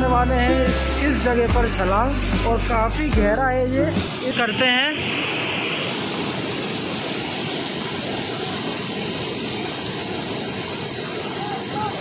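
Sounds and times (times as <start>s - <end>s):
water rushing over rocks: 3.9s - 12.0s.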